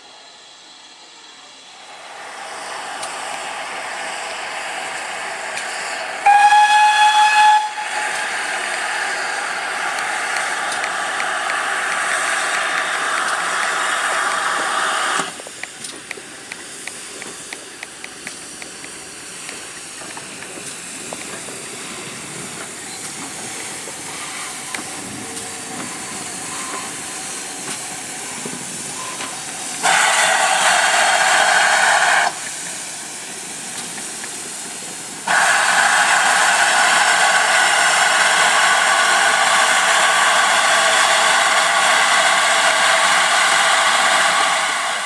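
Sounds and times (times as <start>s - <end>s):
soft locomotive steam hiss: 0.0s - 45.0s
steam locomotive loud steam hiss: 0.0s - 45.0s.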